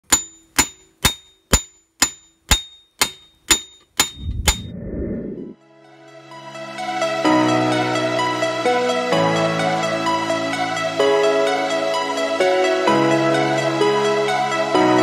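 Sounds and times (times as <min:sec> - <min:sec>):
hammer striking hot steel: 0:00.0 - 0:04.7
low rumble: 0:04.0 - 0:05.6
music: 0:05.6 - 0:15.0.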